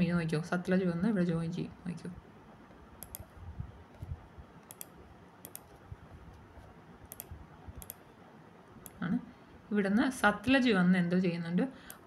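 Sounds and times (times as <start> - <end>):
computer mouse clicking: 2.7 - 8.1, 8.8 - 9.0.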